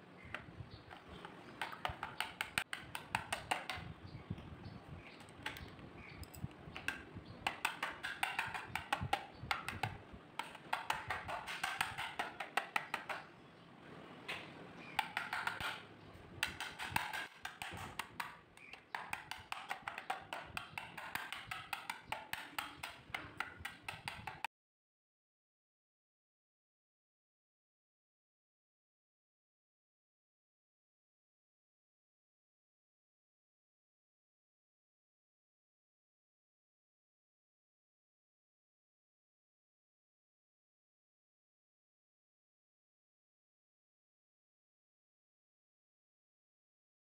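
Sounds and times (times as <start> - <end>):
pencil lead tapping paper: 1.0 - 3.9, 6.7 - 13.3, 14.3 - 15.8, 16.4 - 24.5.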